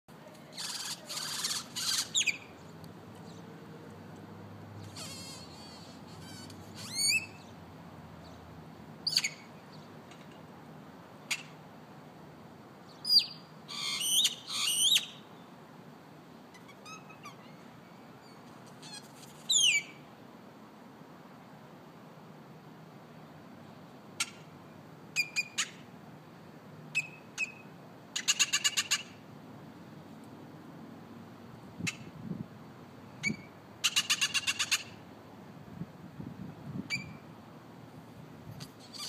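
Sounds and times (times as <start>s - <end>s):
bird harsh calls: 0.5s - 2.6s, 4.8s - 7.5s, 13.1s - 15.2s, 33.2s - 35.0s.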